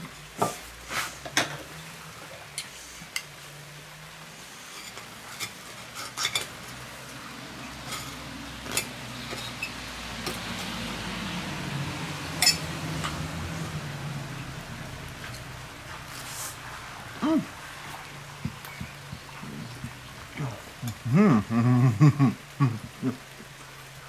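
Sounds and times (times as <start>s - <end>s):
low steady hum: 5.6s - 24.0s
cutlery clinking on a plate: 12.4s - 13.2s.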